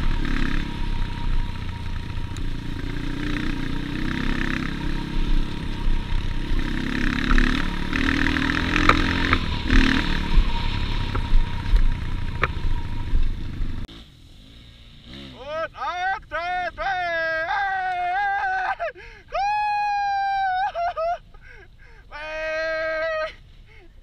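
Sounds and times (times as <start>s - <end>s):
motorcycle engine running: 0.0s - 15.6s.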